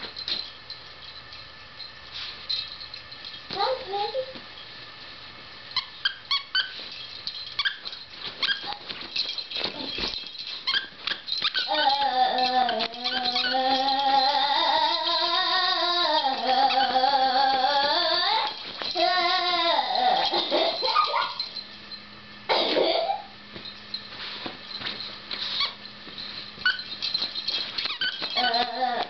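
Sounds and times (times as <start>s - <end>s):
dog whining: 7.6s - 21.7s, 25.4s - 26.0s, 26.6s - 29.0s.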